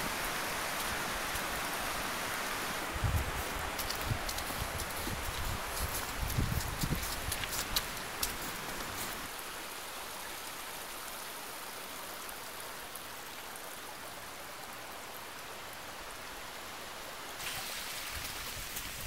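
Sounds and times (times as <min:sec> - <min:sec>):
creek running over rocks: 0:00.0 - 0:19.0.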